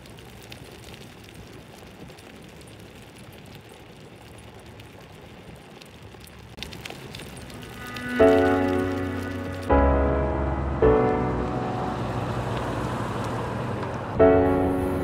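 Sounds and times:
faint clicks: 0.0s - 9.7s
skateboard wheels rolling on pavement: 0.0s - 15.0s.

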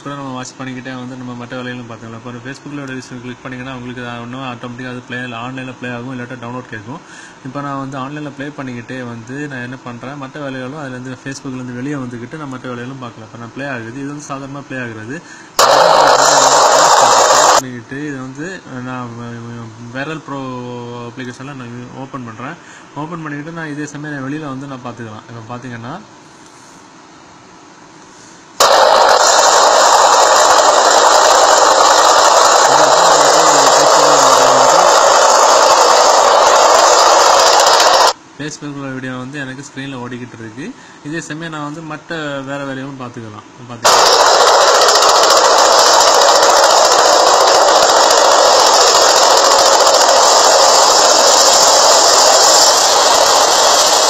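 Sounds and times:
loud steady rushing noise: 15.6s - 17.6s, 28.6s - 38.2s, 43.8s - 54.0s
helicopter engine and rotor noise: 29.1s - 38.2s.

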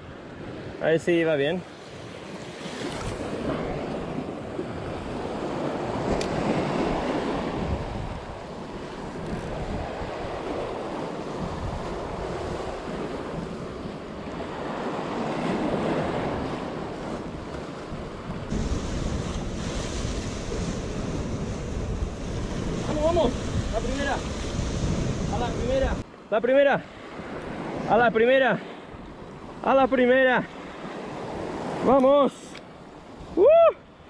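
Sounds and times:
sea waves washing against rocks: 1.9s - 26.1s, 27.0s - 33.4s
wind buffeting microphone: 2.6s - 26.0s.

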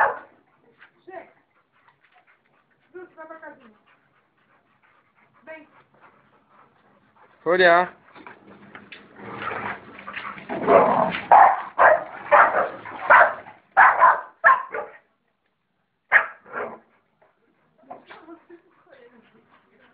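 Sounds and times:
dogs barking: 0.0s - 0.4s, 10.7s - 15.0s, 16.1s - 16.9s.

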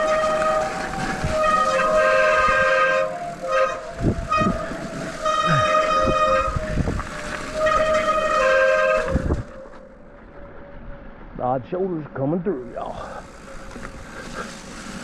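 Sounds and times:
train whistle blasts: 0.0s - 9.8s.

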